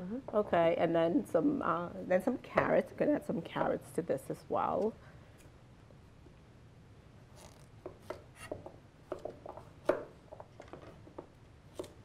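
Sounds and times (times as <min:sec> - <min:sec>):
knife cutting carrot on board: 0:07.4 - 0:10.1, 0:11.7 - 0:12.0.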